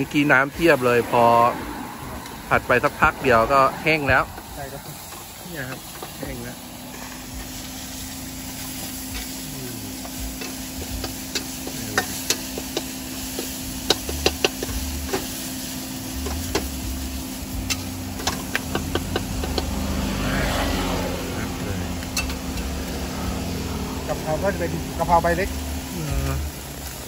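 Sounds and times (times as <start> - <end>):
faint sizzle: 2.2 - 27.0
metal utensils scraping a wok: 4.3 - 20.9, 22.0 - 23.8.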